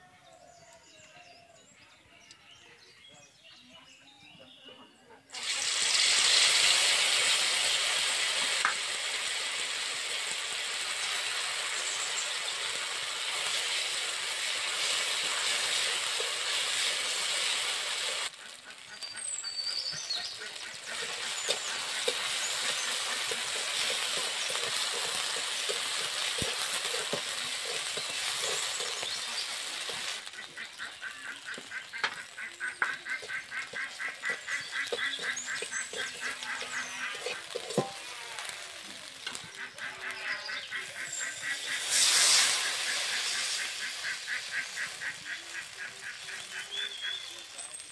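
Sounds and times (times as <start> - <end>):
paste sizzling in hot oil: 5.3 - 47.9
ducks quacking: 12.6 - 38.3, 39.4 - 47.4
metal spatula scraping pan: 12.7 - 18.1, 20.5 - 30.2, 31.5 - 38.6, 41.2 - 44.8.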